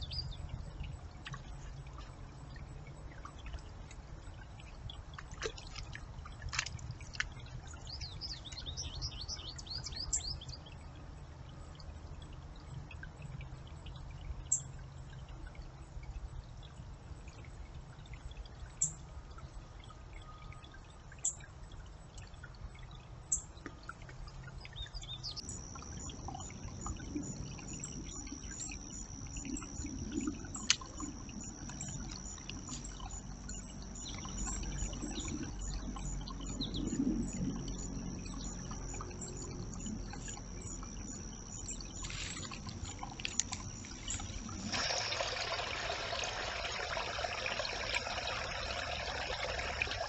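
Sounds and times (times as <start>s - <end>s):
shallow brook trickling: 0.0s - 50.0s
steady high-pitched tone: 25.4s - 45.5s.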